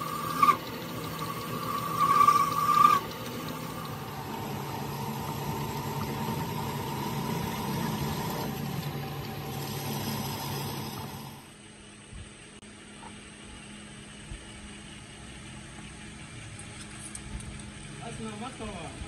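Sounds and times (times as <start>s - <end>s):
machine tool humming: 0.0s - 11.5s
high machine whine: 0.0s - 11.7s.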